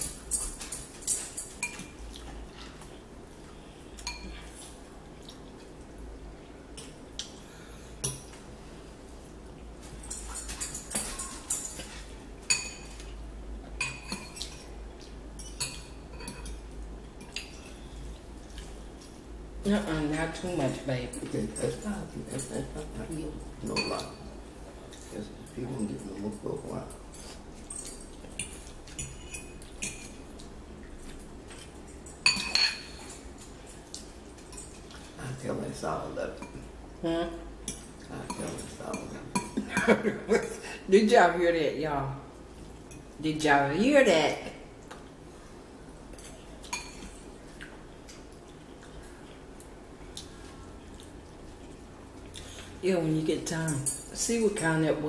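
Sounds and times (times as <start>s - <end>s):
chewing: 0.0s - 7.4s, 46.3s - 52.8s
fork clinking against ceramic bowl: 31.5s - 33.2s.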